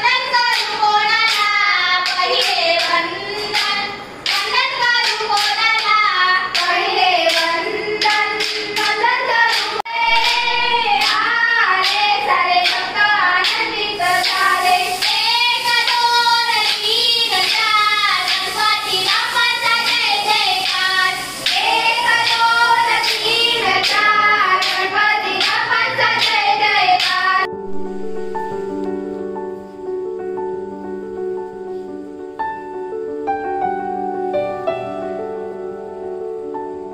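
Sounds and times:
girls singing folk song: 0.0s - 27.5s.

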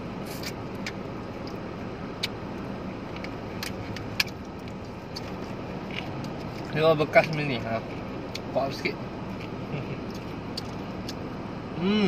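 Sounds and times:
car cabin hum: 0.0s - 12.0s
crunchy chicken being chewed: 3.0s - 7.4s, 9.3s - 11.2s.

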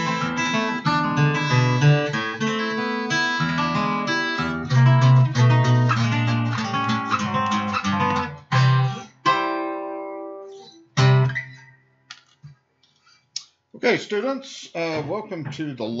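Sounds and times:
acoustic guitar strumming: 0.0s - 11.9s.

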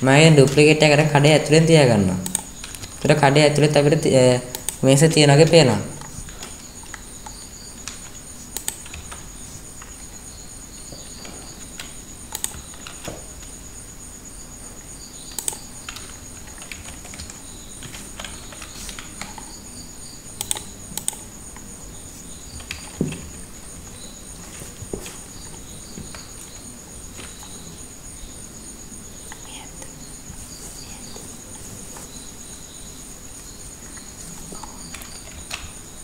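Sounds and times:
computer mouse and keyboard clicks: 2.2s - 3.2s, 4.5s - 4.8s, 6.0s - 10.0s, 10.9s - 13.6s, 15.3s - 19.7s, 20.3s - 21.7s, 22.5s - 24.0s, 33.8s - 35.8s.

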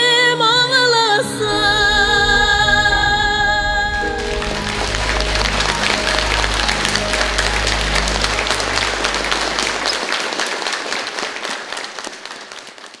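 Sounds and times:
low notes of a song: 0.0s - 10.2s
crowd applauding: 3.9s - 13.0s.

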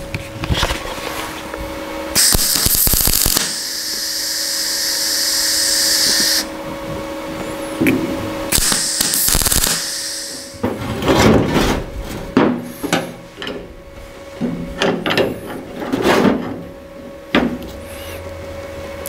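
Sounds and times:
metal scraping and creaking: 10.6s - 13.7s, 14.5s - 16.7s.

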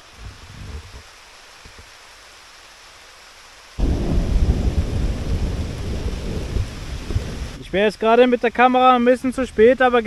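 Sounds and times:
steady rain: 0.0s - 10.0s
thunder rumbling: 3.8s - 7.6s.

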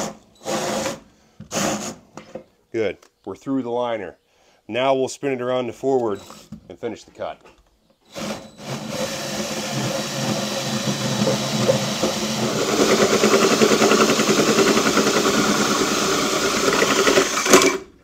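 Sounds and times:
drill motor hum: 8.1s - 17.8s
hole saw cutting metal: 8.1s - 17.9s.

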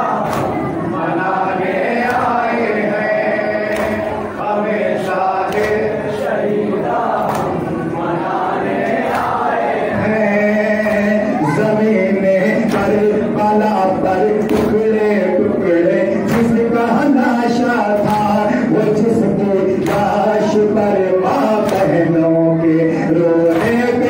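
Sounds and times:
men chanting in chorus: 0.0s - 24.0s
hands slapping chests: 0.2s - 0.6s, 2.0s - 2.4s, 3.7s - 4.2s, 5.4s - 5.9s, 7.2s - 7.6s, 21.6s - 22.0s.

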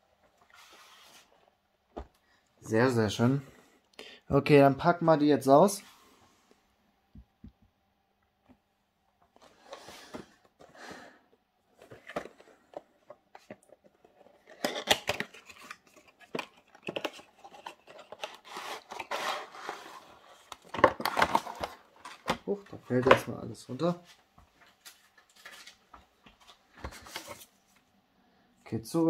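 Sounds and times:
packaging rustling and scraping: 11.7s - 23.3s, 24.6s - 27.8s.

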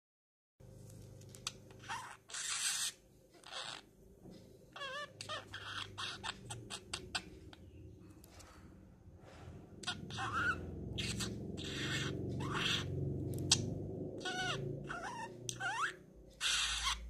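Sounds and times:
budgerigar warble: 4.8s - 7.4s, 9.8s - 17.0s
budgerigar chattering: 4.8s - 7.6s, 9.8s - 17.0s.

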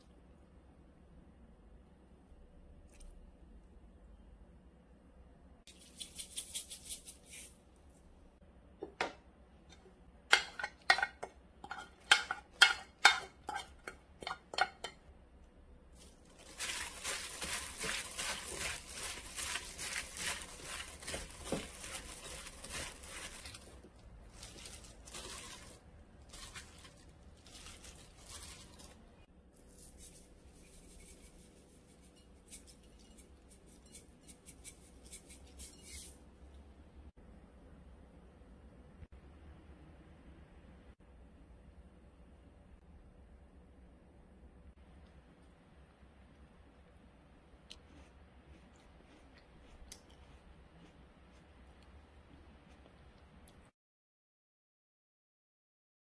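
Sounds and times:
salad rustling and squishing: 15.9s - 36.1s.

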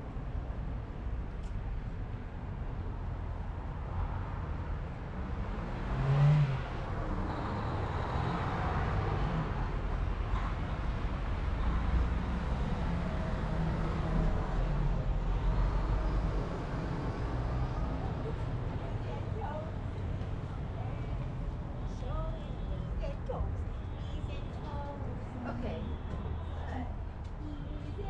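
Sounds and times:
car engine accelerating past: 5.4s - 6.9s.

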